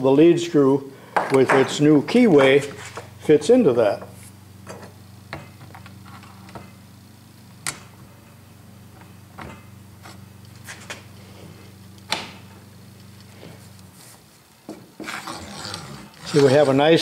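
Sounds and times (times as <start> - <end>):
lead screw sliding through worm: 15.0 - 17.0.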